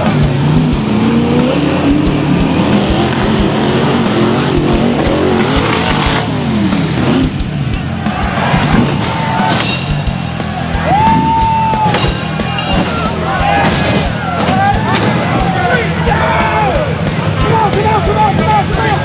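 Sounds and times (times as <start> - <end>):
buggy engine revving hard: 0.0 - 11.4
music: 0.0 - 19.0.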